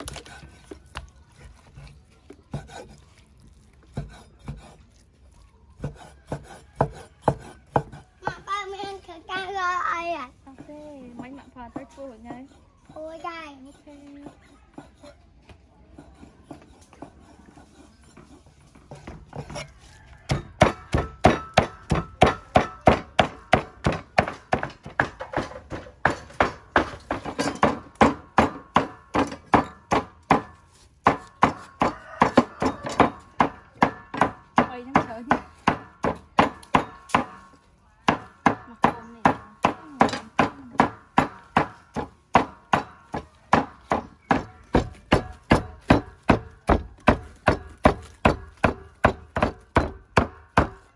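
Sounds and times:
cleaver chopping meat on wood: 0.0s - 3.1s, 3.8s - 8.5s, 18.9s - 50.9s.

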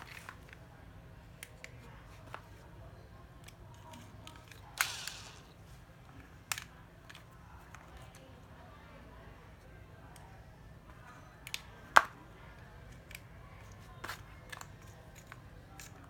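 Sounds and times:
drill rattle: 4.8s - 5.5s.

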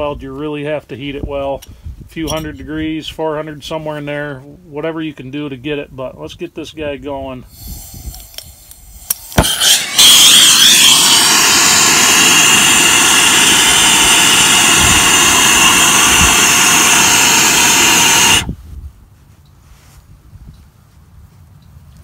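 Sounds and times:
torch flame hissing: 7.5s - 18.6s.

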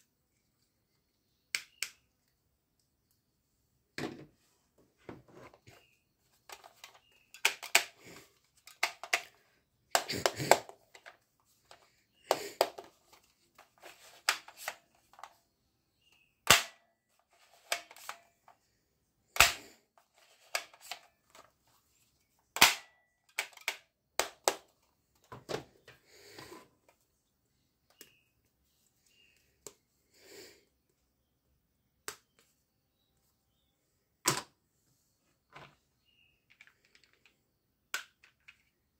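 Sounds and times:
plastic toys clattering: 6.4s - 15.4s, 23.2s - 24.7s, 36.4s - 38.9s.

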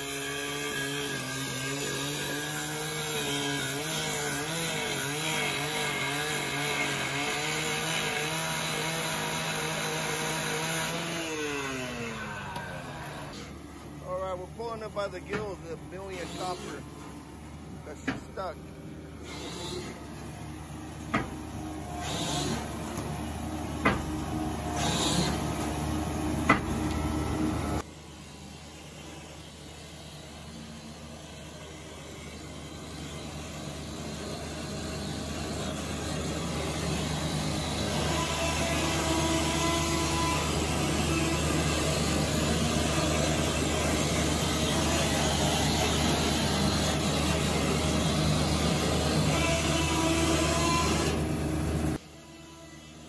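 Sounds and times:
winch pulling cable: 4.4s - 17.1s, 19.2s - 20.3s, 21.0s - 25.8s
sharp knocks: 21.1s - 21.4s, 23.8s - 24.1s.

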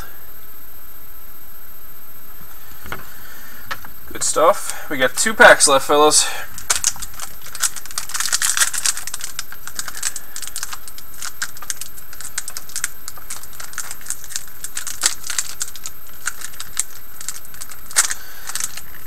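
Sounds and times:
steady hiss: 0.0s - 19.0s
wrapper crinkling and tearing: 6.5s - 19.0s.

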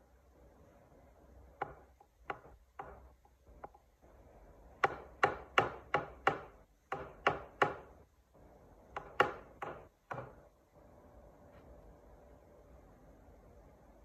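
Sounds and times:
wooden toy knocking: 1.6s - 3.9s.

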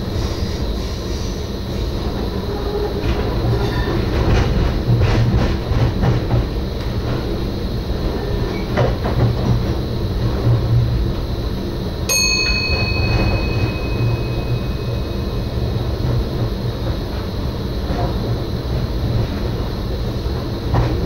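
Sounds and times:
electric train rumbling: 0.0s - 21.0s
bell-like ding: 12.1s - 16.0s.

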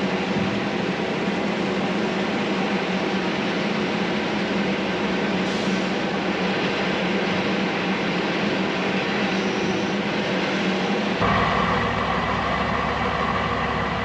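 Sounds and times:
heavy diesel machinery running: 0.0s - 14.0s
diesel truck idling: 10.8s - 14.0s
high whine: 11.1s - 14.0s.

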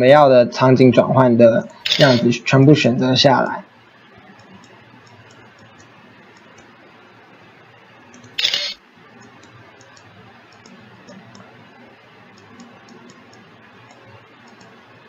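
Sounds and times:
microphone hiss: 0.0s - 15.0s
keyboard keys clicking: 12.3s - 14.8s.

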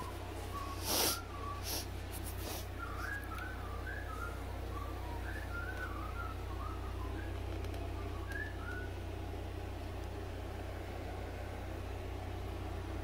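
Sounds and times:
person whistling gliding notes: 0.0s - 1.9s, 2.7s - 9.0s
steady low hum: 0.0s - 13.0s.

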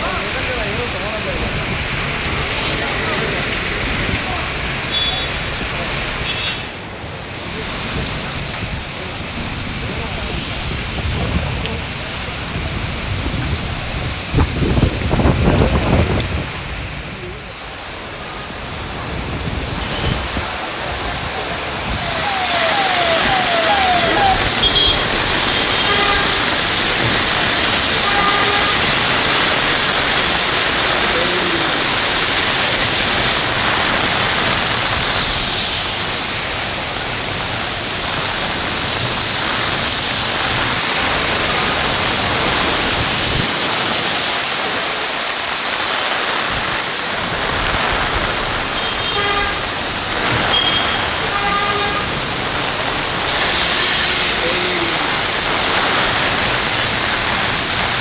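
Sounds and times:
heavy rain pouring: 0.0s - 58.0s
tyres on wet road: 0.0s - 58.0s
car horns honking: 4.9s - 5.4s, 22.0s - 26.8s, 27.9s - 29.2s, 50.4s - 52.2s.

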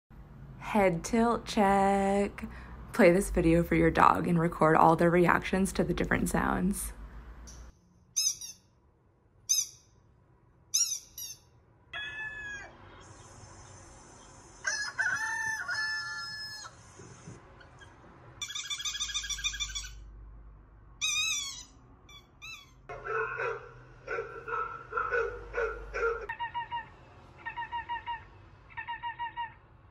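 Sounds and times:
bird and fowl-like calls: 10.8s - 20.0s.

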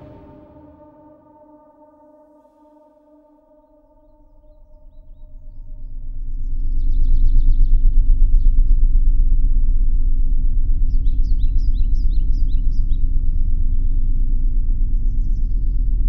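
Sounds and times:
loud throbbing low rumble: 0.0s - 1.4s.

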